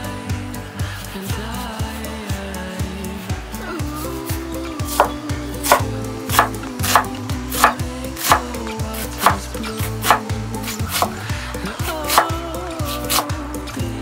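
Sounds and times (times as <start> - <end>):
soft background music: 0.0 - 14.0
knife chopping onion on wood: 4.8 - 11.2, 11.8 - 13.3.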